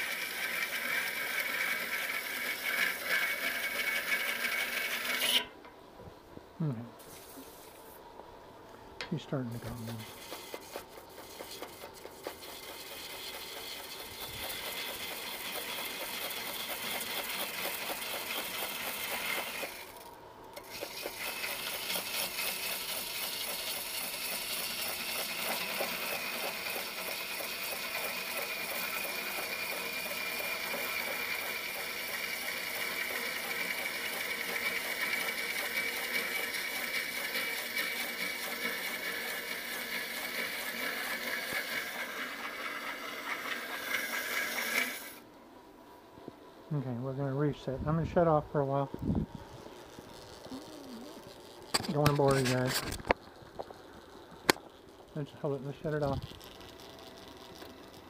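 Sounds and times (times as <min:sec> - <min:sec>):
lathe tool cutting wood: 0:00.0 - 0:05.5, 0:09.6 - 0:19.9, 0:20.6 - 0:45.2.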